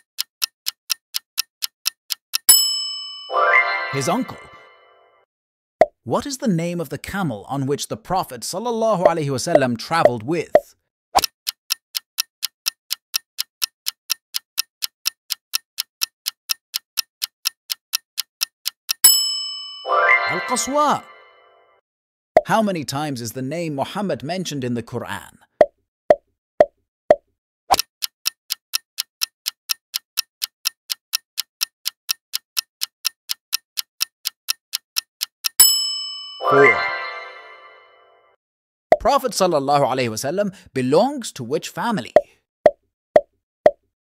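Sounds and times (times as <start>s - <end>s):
countdown timer ticking: 0.0s - 5.0s, 9.0s - 21.5s, 26.6s - 37.9s.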